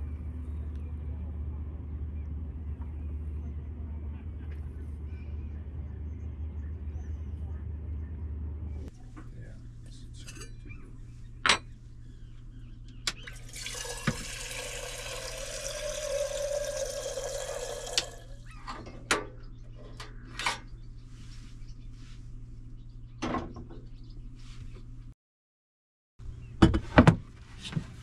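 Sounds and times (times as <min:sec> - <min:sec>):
kettle clinks and knocks: 0:13.2 - 0:18.2
water running into a kettle: 0:13.2 - 0:18.4.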